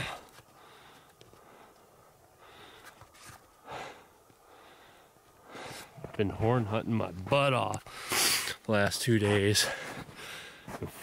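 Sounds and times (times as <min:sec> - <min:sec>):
person breathing hard: 0:00.0 - 0:06.0, 0:09.6 - 0:10.8.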